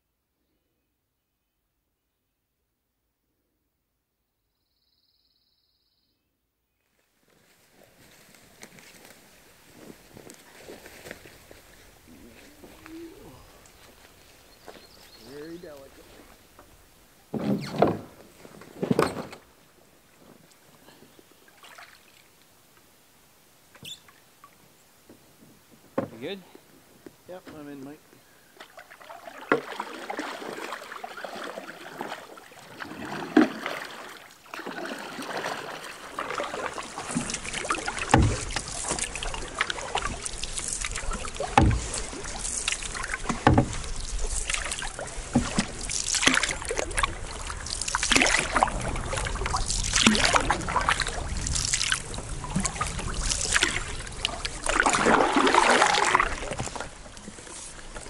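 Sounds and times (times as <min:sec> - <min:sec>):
paddle strokes splashing: 0:21.4 - 0:22.4, 0:28.6 - 0:58.0
water washing along hull: 0:28.7 - 0:58.0.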